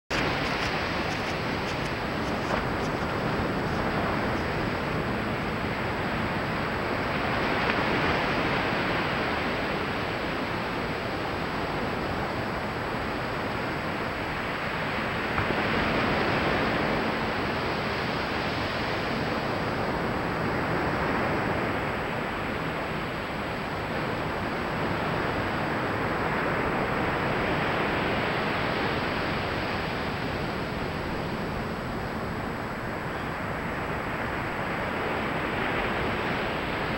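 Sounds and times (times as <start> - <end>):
ocean waves breaking on beach: 0.1 - 36.9.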